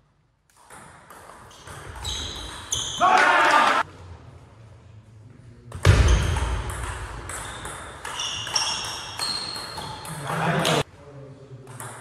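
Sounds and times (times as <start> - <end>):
table tennis ball strikes: 5.8 - 10.8.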